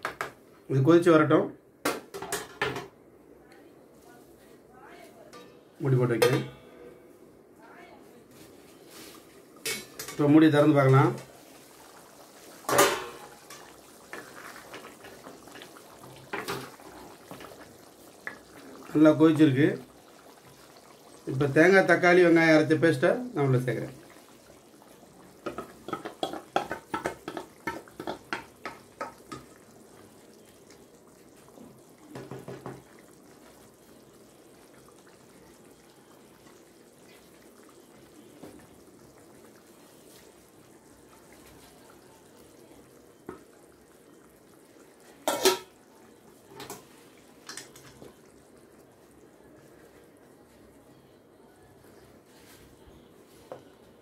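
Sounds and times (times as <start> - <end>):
curry bubbling: 8.4 - 54.0
spoon knocking against pan: 25.4 - 29.5.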